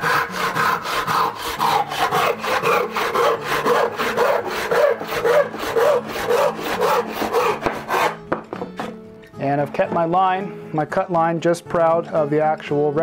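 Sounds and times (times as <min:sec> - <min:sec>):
handsaw cutting wood: 0:00.0 - 0:09.0.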